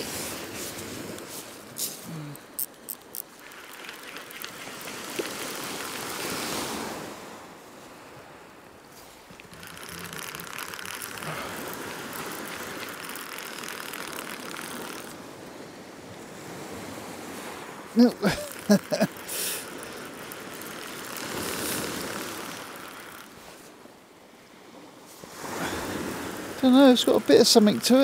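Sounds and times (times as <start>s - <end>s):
waves washing onto shingle: 0.0s - 28.0s
sharp clicks: 2.6s - 6.5s, 9.3s - 15.2s, 18.3s - 23.4s.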